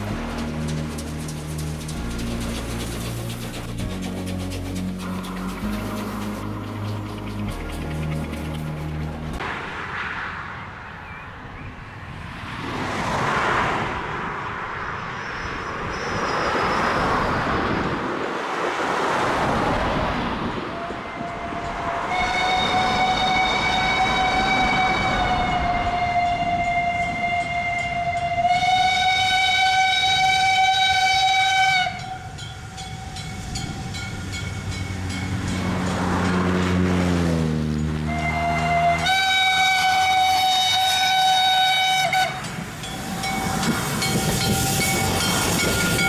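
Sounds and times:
cars passing: 0:00.0 - 0:28.3, 0:31.9 - 0:46.0
steam locomotive whistle blast: 0:20.7 - 0:34.1, 0:38.0 - 0:46.0.

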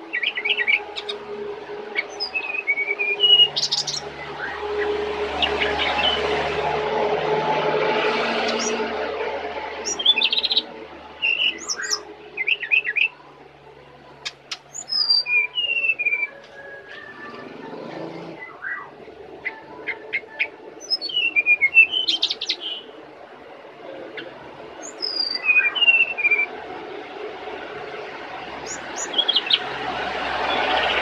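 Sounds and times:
bird singing chirps and whistles: 0:00.1 - 0:01.2, 0:02.0 - 0:04.6, 0:09.8 - 0:10.6, 0:11.2 - 0:13.1, 0:14.2 - 0:22.8, 0:24.8 - 0:26.5, 0:28.6 - 0:29.6.

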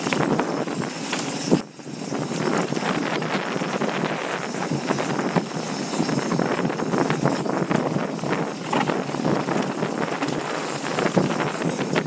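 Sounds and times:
bike knocking on bumps: 0:00.0 - 0:12.0
mountain bike rattle and tyre noise: 0:00.0 - 0:12.0
wind rushing over microphone: 0:00.0 - 0:12.0.

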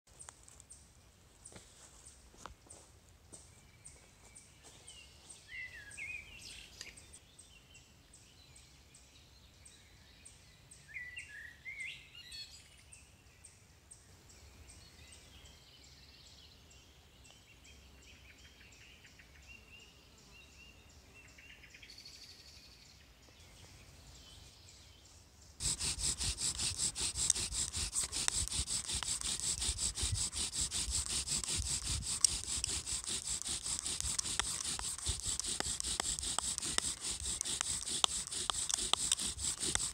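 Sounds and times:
bow drill rasping on wood: 0:25.6 - 0:39.9.

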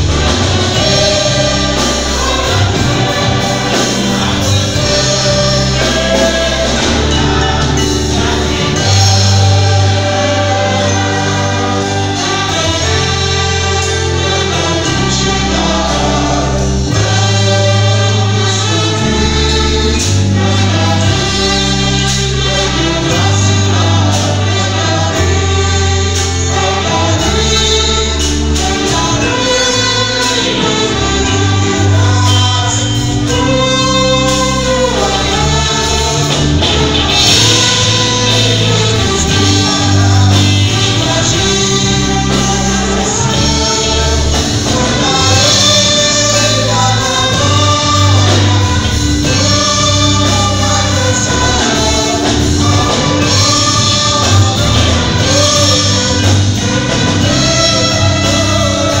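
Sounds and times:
choir singing a hymn: 0:00.0 - 0:59.0
instrumental backing with bass: 0:00.0 - 0:59.0.

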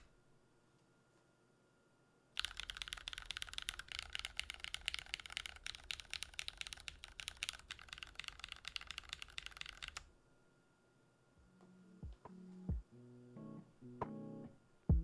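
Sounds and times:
fast typing key clacks: 0:02.4 - 0:10.0.

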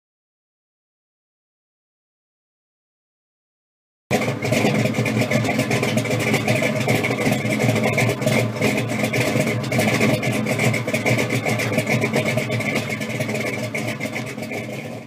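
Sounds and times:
car engine running: 0:04.1 - 0:15.0.

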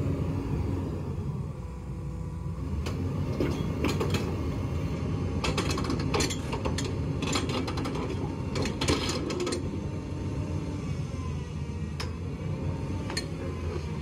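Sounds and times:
heavy engine droning: 0:00.0 - 0:14.0.

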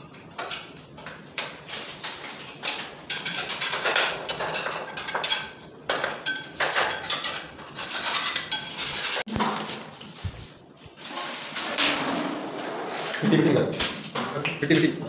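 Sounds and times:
hand tools scraping on marble: 0:06.8 - 0:09.3.

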